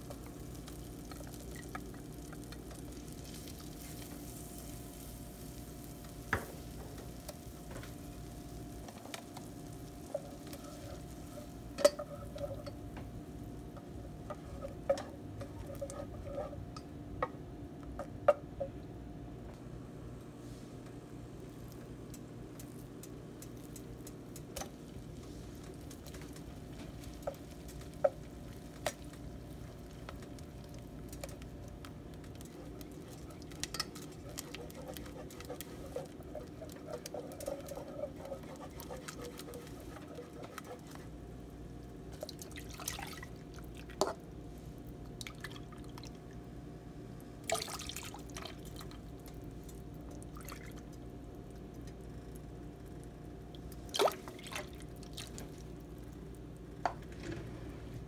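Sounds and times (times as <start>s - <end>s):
steady low hum: 0.0s - 47.5s
whisk tapping metal pan: 10.0s - 12.8s, 32.2s - 41.1s
wet squishing and sloshing: 42.1s - 44.0s, 45.1s - 46.2s, 47.4s - 49.0s, 50.1s - 50.9s, 53.5s - 55.6s.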